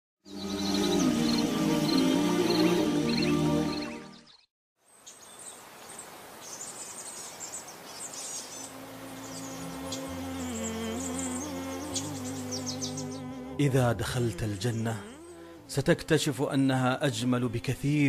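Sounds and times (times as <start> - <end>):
music: 0.2 - 4.4, 9.0 - 15.8
small birds chirping: 0.3 - 13.4.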